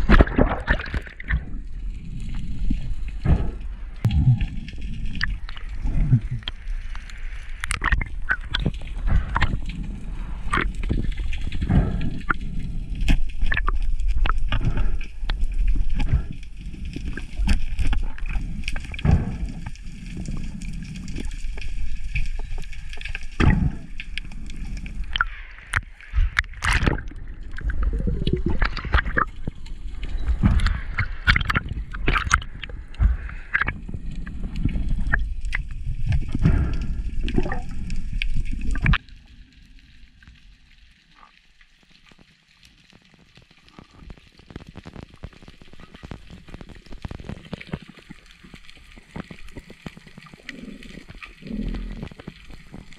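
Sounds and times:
churning underwater water: 0:00.0 - 0:52.9
fish thrashing knocks and clicks: 0:30.2 - 0:33.8.

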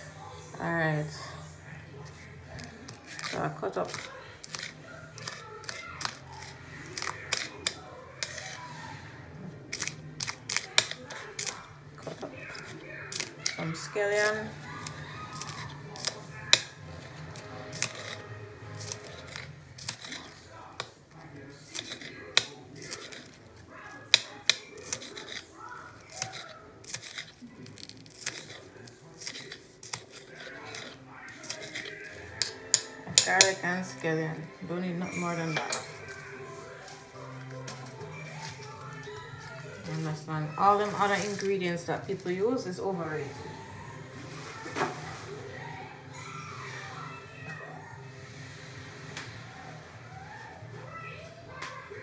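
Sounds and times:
knife slicing scallions: 0:02.6 - 0:08.8, 0:09.7 - 0:34.0, 0:35.5 - 0:42.4.

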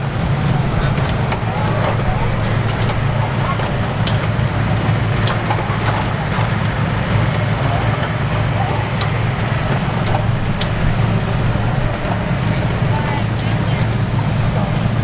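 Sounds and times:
low machine hum: 0:00.0 - 0:15.0
outdoor noise haze: 0:00.0 - 0:15.0.

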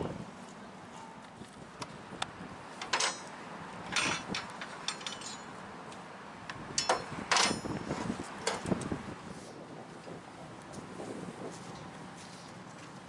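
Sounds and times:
metal knocks clunks and scrapes: 0:02.8 - 0:03.3, 0:03.9 - 0:05.5, 0:06.8 - 0:08.8.

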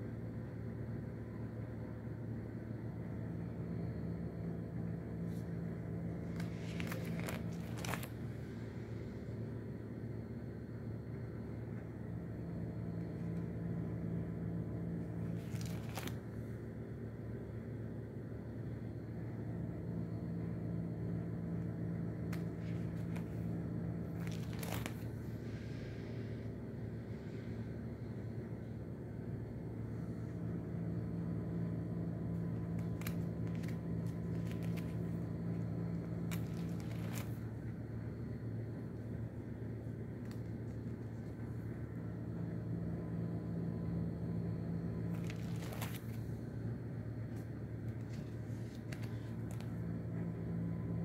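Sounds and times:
low hum: 0:00.0 - 0:51.0
album page rustling: 0:05.1 - 0:09.1, 0:11.7 - 0:16.6, 0:21.5 - 0:26.3, 0:29.8 - 0:41.9, 0:44.3 - 0:51.0
paper clicks and crinkles: 0:05.2 - 0:09.0, 0:14.8 - 0:16.6, 0:21.5 - 0:26.1, 0:29.9 - 0:38.3, 0:38.9 - 0:42.0, 0:44.7 - 0:50.6.

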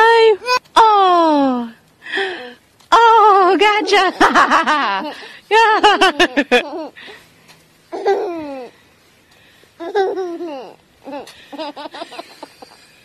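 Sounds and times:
toddler laughing: 0:04.1 - 0:07.0, 0:07.9 - 0:08.7, 0:09.8 - 0:12.9.

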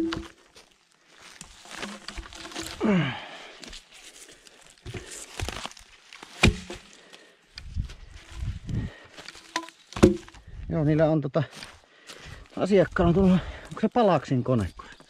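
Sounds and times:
log dropped onto pile: 0:00.0 - 0:03.8, 0:04.8 - 0:07.0, 0:09.2 - 0:10.4
twigs crackling: 0:00.0 - 0:10.6
footsteps on forest floor: 0:00.0 - 0:15.0.

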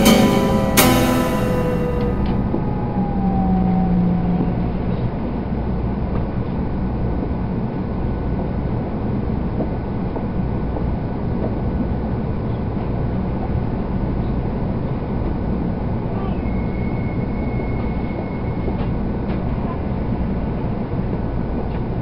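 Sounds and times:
thin high whine: 0:00.0 - 0:06.0
train cabin rumble: 0:00.0 - 0:22.0.

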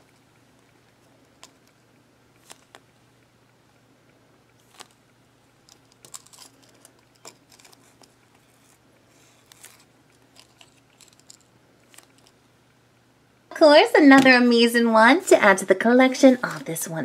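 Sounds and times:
paper tag brushing: 0:15.2 - 0:17.0.

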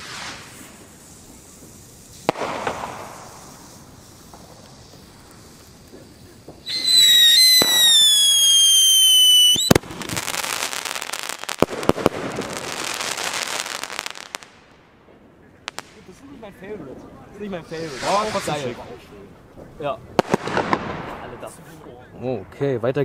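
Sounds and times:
firework whistling: 0:00.0 - 0:14.7, 0:17.3 - 0:19.3
firework bang: 0:00.0 - 0:19.0, 0:20.2 - 0:21.7
firework crackling: 0:00.0 - 0:22.2.

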